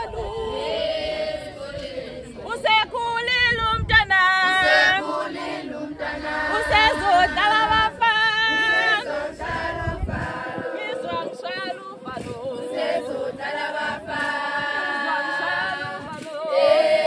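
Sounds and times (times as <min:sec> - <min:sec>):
women singing unaccompanied: 0:00.0 - 0:17.0.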